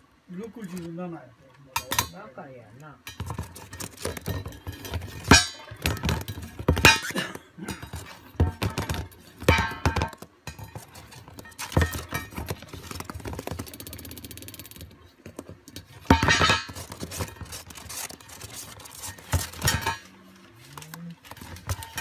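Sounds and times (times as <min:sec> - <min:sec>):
plastic dish clattering on cardboard: 0:03.1 - 0:13.8, 0:15.2 - 0:20.1, 0:21.3 - 0:22.0.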